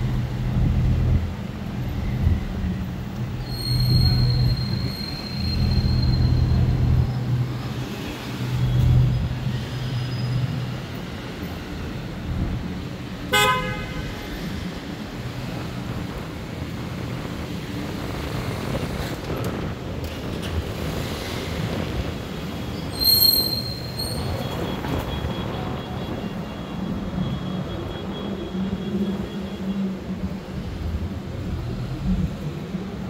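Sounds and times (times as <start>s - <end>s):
street traffic noise: 0.0s - 33.0s
high-pitched squeal: 3.3s - 7.4s
car horn toot: 13.3s - 14.1s.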